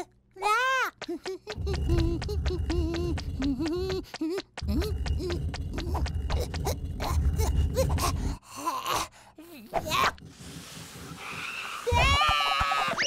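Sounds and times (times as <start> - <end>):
small cartoon footsteps: 0.0 - 8.4
low rumble: 1.5 - 4.0, 4.6 - 8.4.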